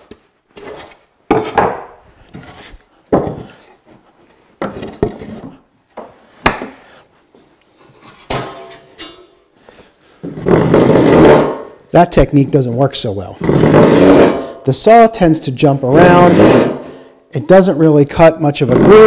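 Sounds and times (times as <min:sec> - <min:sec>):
wooden boards knocking on bench: 0:01.3 - 0:01.9, 0:03.1 - 0:03.5
wood rubbing: 0:13.4 - 0:14.5, 0:16.0 - 0:16.9.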